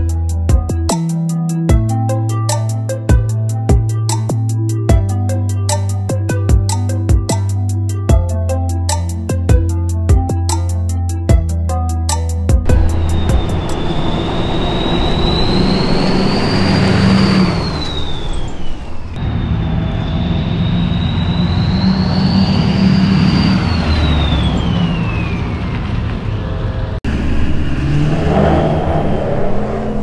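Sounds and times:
diesel engine rumble: 0:12.5 - 0:30.0
turbo whistling: 0:12.6 - 0:25.9.

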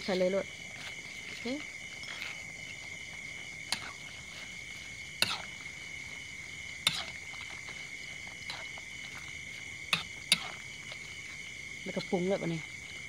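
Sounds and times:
crickets chirring: 0:00.0 - 0:13.0
spatula scraping a wok: 0:00.0 - 0:13.0.

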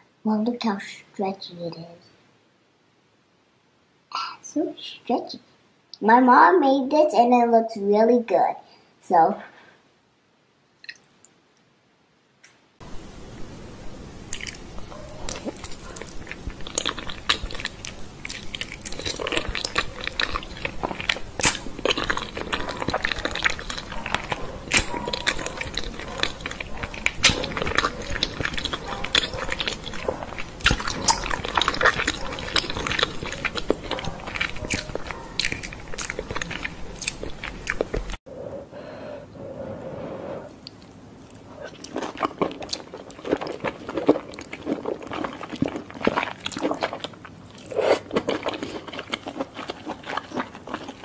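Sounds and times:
wet chewing and mouth smacks: 0:10.8 - 0:11.3, 0:14.2 - 0:38.2, 0:40.6 - 0:51.0.

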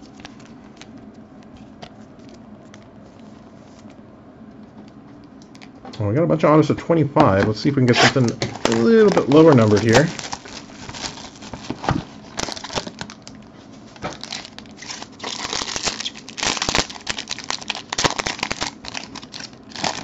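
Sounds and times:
plastic wrapper crinkling: 0:07.9 - 0:20.0.

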